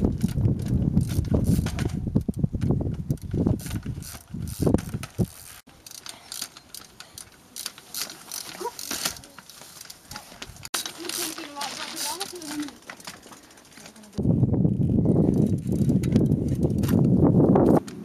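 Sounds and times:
freewheel ratchet clicking: 0.2s - 9.3s.

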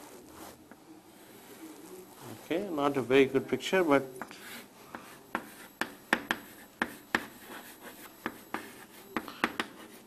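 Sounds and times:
pen tapping and scratching: 4.2s - 10.0s.

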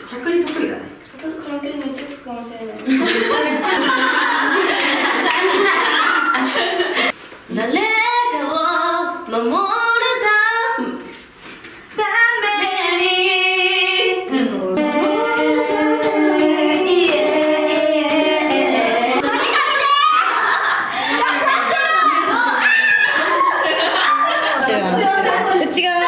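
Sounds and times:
woman singing: 7.5s - 11.0s, 12.0s - 19.2s.

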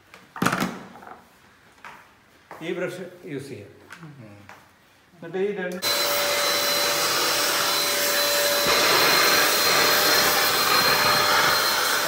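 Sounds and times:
handheld vacuum cleaner whining: 5.8s - 12.0s.

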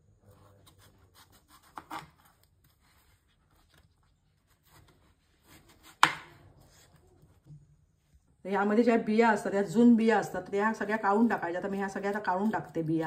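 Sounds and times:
knife cutting cucumber: 0.3s - 2.5s, 4.4s - 6.9s, 10.8s - 13.0s.

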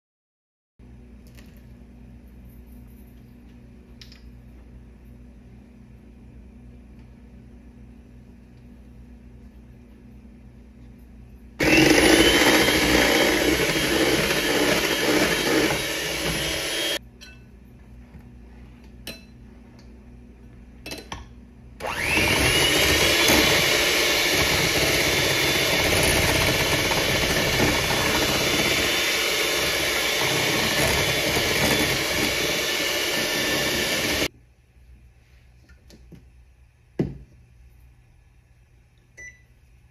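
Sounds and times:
electric hand mixer whirring: 11.6s - 17.0s, 21.8s - 34.3s.

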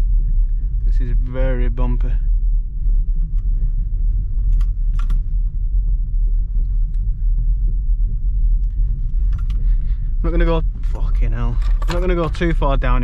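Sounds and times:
car cabin rumble over rocks: 9.2s - 13.0s.

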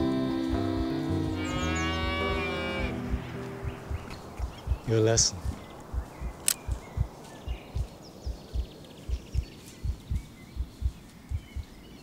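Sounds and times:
low thumping pulse: 0.0s - 11.8s
faint bird chirps: 1.3s - 12.0s
sharp click: 6.2s - 6.9s.

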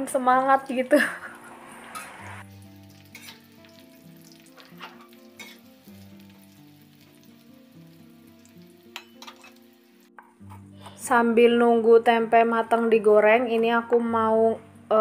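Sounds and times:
food sizzling in oil: 0.0s - 10.2s.

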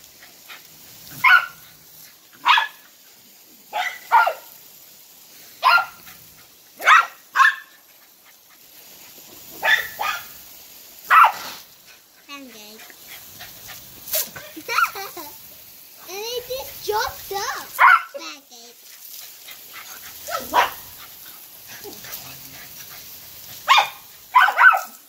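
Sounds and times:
dog barking: 1.1s - 1.6s, 2.4s - 2.8s, 3.7s - 4.6s, 5.6s - 6.1s, 6.8s - 7.8s, 9.6s - 10.4s, 11.1s - 11.6s, 17.7s - 18.2s, 20.2s - 21.0s, 23.6s - 25.0s.

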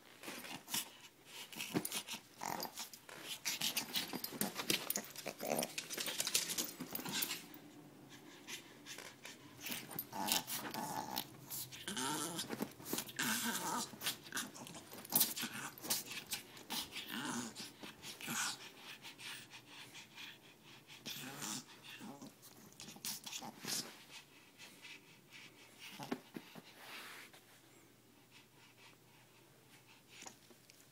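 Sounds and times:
rustling and scratching on blanket: 0.0s - 7.6s, 8.2s - 19.1s, 21.2s - 24.8s, 25.4s - 27.7s
dog growling playfully: 1.5s - 7.5s, 9.1s - 18.7s, 21.0s - 23.8s.

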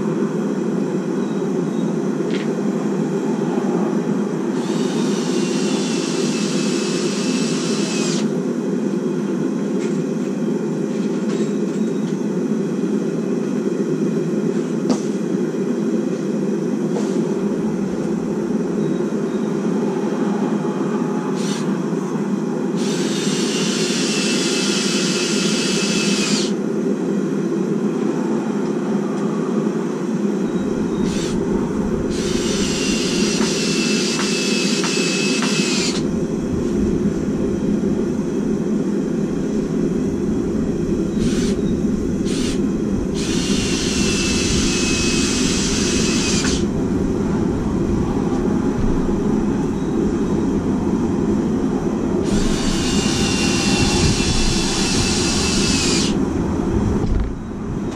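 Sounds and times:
gas forge roaring: 0.0s - 57.9s
power drill whining: 4.6s - 8.3s, 21.3s - 21.7s, 22.8s - 26.6s, 30.9s - 31.4s, 32.1s - 36.1s, 41.2s - 42.6s, 43.2s - 46.7s, 52.2s - 56.2s.

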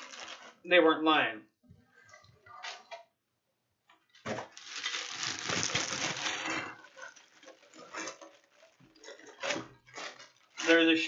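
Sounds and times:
packing material rustling: 0.0s - 0.6s, 4.2s - 10.7s.

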